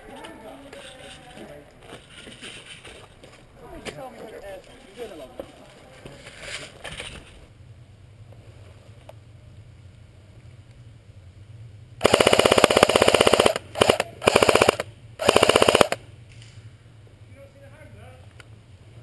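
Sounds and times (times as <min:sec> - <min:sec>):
airsoft gun firing bursts: 0:12.0 - 0:16.0.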